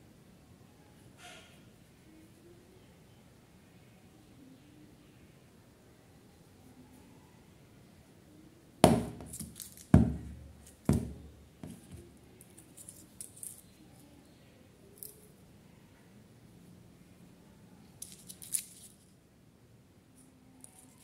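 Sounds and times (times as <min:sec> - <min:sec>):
plastic cups knocking on table: 0:08.8 - 0:12.0.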